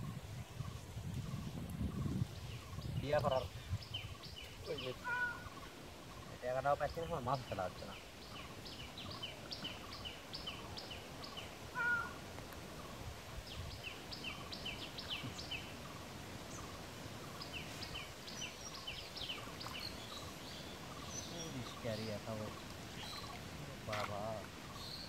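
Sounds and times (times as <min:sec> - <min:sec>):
animal high chirps: 0:04.9 - 0:05.6, 0:11.8 - 0:12.2
louder lower animal call: 0:05.0 - 0:05.6, 0:11.7 - 0:12.2.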